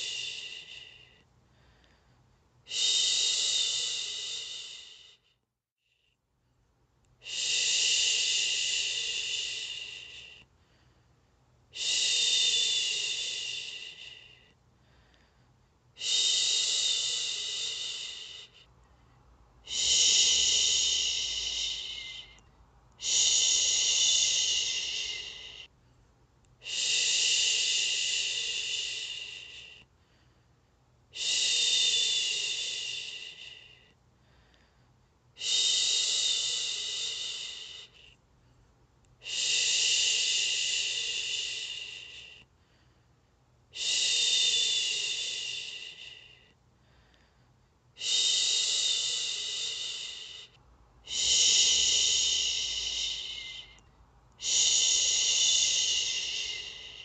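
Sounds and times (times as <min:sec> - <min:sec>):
woman shushing: 0:19.7 - 0:22.4, 0:23.0 - 0:25.7, 0:51.0 - 0:53.8, 0:54.4 - 0:57.0.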